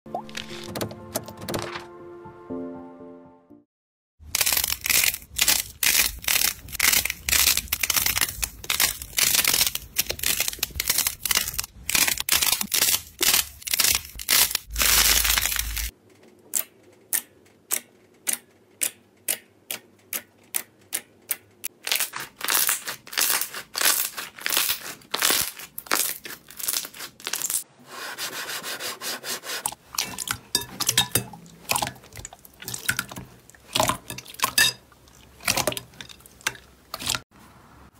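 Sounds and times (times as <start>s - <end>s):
slime squishing: 29.7s - 37.2s.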